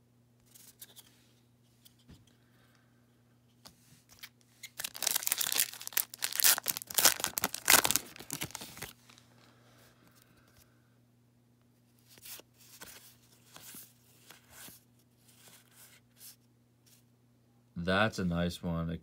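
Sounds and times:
wrapper crinkling and ripping: 0:04.2 - 0:09.2.

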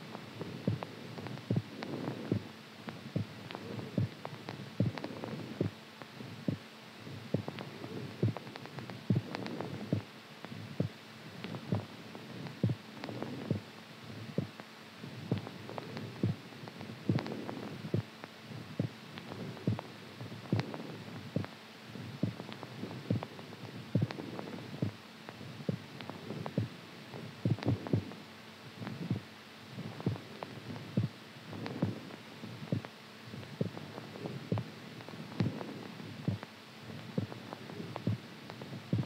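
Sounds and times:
faint steady hum: 0:00.0 - 0:39.0
heartbeat thumps: 0:00.4 - 0:05.8, 0:06.4 - 0:13.7, 0:14.3 - 0:28.2, 0:28.8 - 0:39.0.

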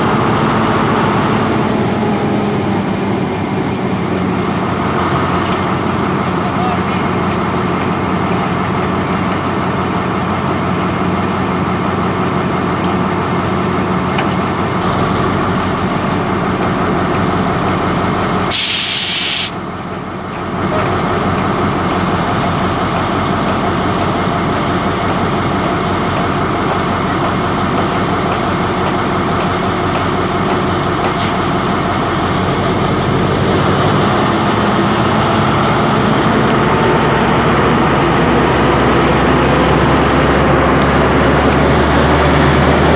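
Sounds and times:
locomotive engine idling: 0:00.0 - 0:42.9
air brake hiss: 0:18.5 - 0:19.6.

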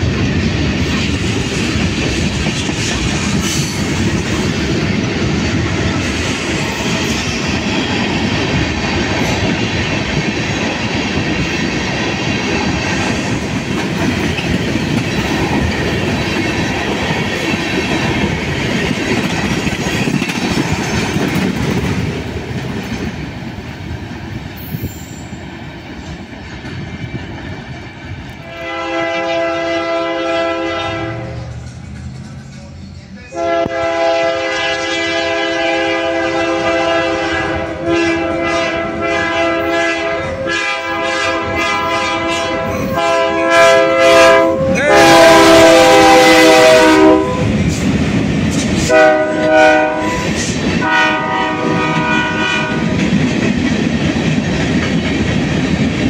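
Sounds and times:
train wheels clattering over rails: 0:00.0 - 0:28.8, 0:31.1 - 0:34.3, 0:44.5 - 0:56.0
locomotive air horn: 0:28.4 - 0:31.5, 0:33.3 - 0:47.6, 0:48.9 - 0:52.9.

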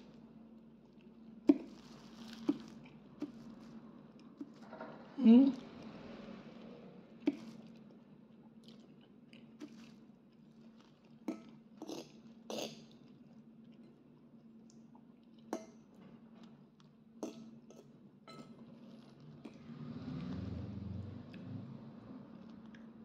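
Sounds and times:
person chewing: 0:00.9 - 0:04.6, 0:07.2 - 0:14.0.

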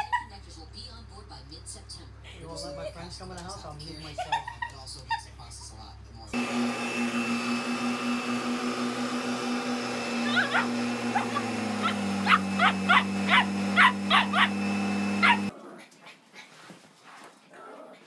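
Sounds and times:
vacuum cleaner motor humming: 0:06.3 - 0:15.5
puppy yapping: 0:10.2 - 0:15.5.

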